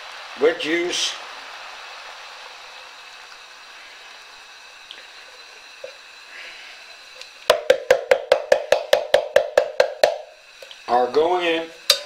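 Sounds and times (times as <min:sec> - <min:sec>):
rapid sharp knocks: 0:07.5 - 0:10.3.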